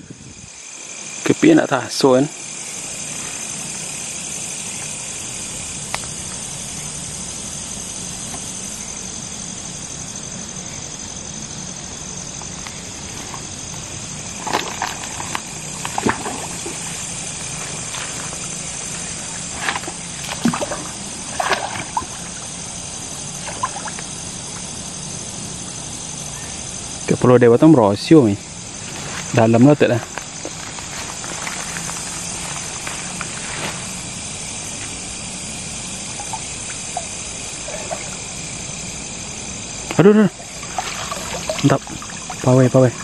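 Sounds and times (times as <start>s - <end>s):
night insects chorus: 0.0s - 43.0s
water sloshing and dripping: 12.4s - 24.8s, 36.0s - 38.6s, 39.9s - 43.0s
short splashes: 14.4s - 22.5s, 23.4s - 24.1s, 36.1s - 38.3s, 40.3s - 43.0s.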